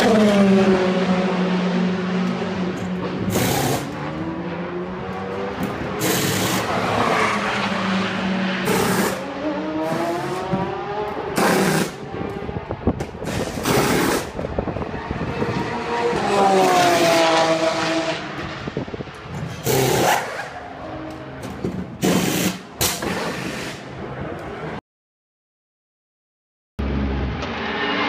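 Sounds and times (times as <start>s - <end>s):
race car engines: 0.0s - 24.8s, 26.8s - 28.0s
pneumatic wheel guns: 3.3s - 4.0s, 6.0s - 6.8s, 8.6s - 9.2s, 11.4s - 12.0s, 19.6s - 20.5s, 22.0s - 23.9s.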